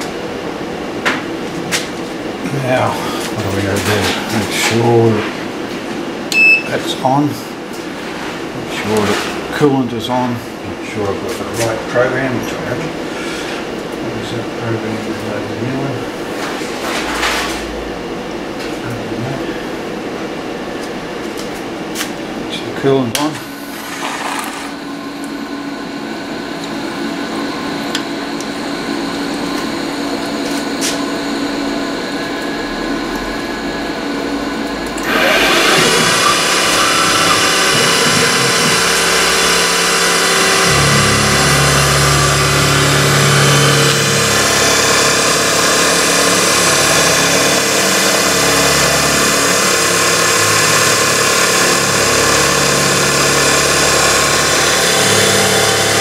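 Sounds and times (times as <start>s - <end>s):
milling machine hum: 0.0s - 56.0s
deep machine rumble: 7.5s - 21.2s, 24.9s - 56.0s.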